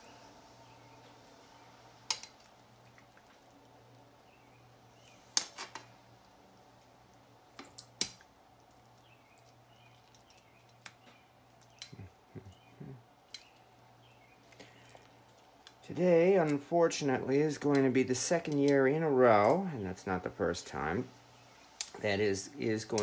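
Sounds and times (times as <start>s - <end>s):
soft wet squelches: 2.0s - 5.4s, 6.0s - 16.6s.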